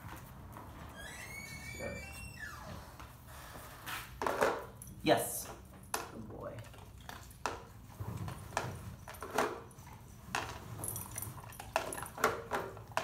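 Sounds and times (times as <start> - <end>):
dog eating from plastic tub: 6.1 - 13.0.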